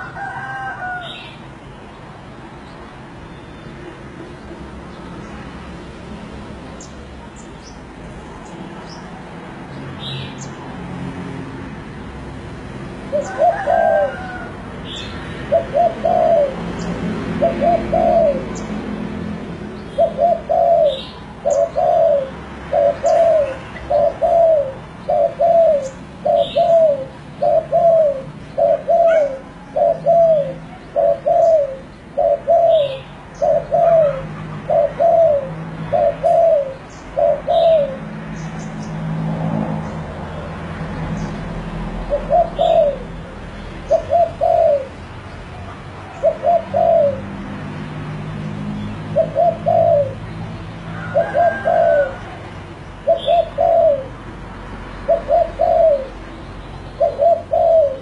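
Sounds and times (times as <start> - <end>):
dove cooing: 0.0 - 1.3, 13.1 - 18.8, 19.9 - 38.9, 41.9 - 45.0, 45.6 - 47.4, 48.8 - 54.3, 55.0 - 56.4, 57.0 - 58.0.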